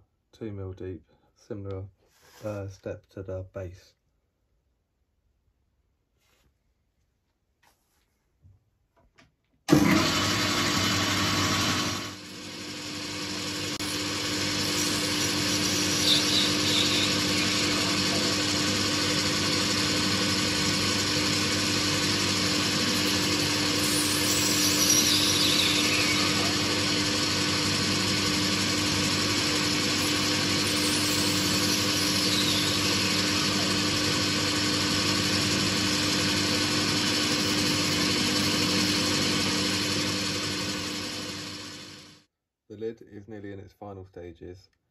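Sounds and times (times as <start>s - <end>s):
lathe motor hum: 9.7s - 42.2s
hiss of metal cutting: 13.8s - 18.7s, 22.1s - 26.8s, 29.3s - 32.9s.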